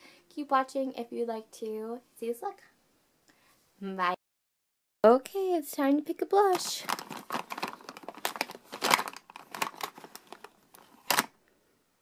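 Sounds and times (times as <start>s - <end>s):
plastic cases clicking and knocking: 6.6s - 11.4s.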